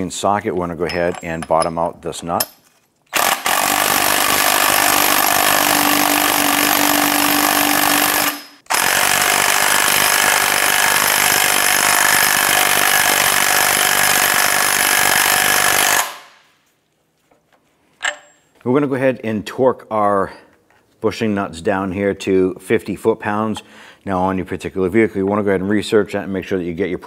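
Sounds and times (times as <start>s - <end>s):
impact wrench hammering: 2.4s - 16.4s.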